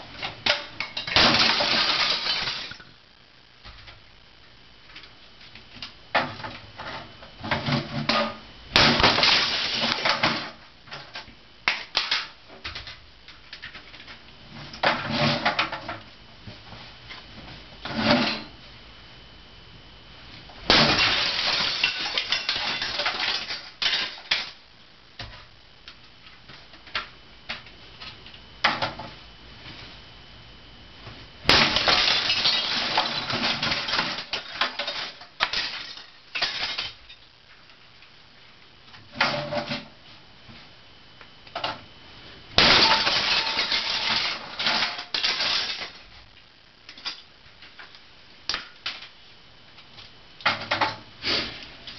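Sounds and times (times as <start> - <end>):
hammer smashing brittle plastic: 0.4 - 2.8, 7.5 - 12.9, 20.7 - 24.6, 31.5 - 37.1, 42.6 - 46.0.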